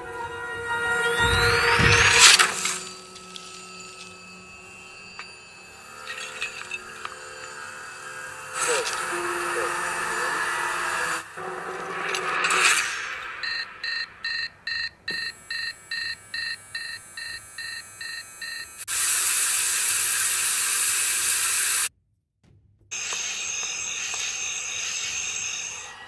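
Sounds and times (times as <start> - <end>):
electronic alarm beeping: 0.8 - 18.8
loud steady hiss: 18.8 - 21.9.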